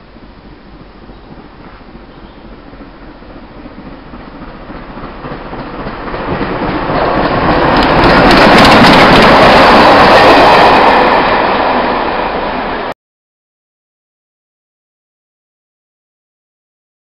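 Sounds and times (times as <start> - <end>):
steam train passing on rails: 0.0 - 13.0
wheels clicking rapidly: 3.8 - 10.4.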